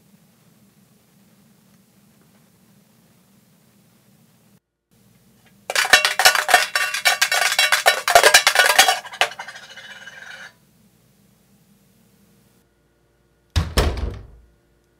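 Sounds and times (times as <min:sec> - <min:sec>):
coin rattling in coin bank: 0:05.7 - 0:10.5.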